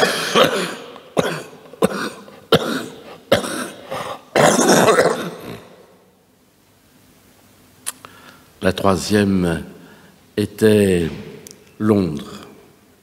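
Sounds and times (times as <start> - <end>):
man coughing: 0.0 - 5.9.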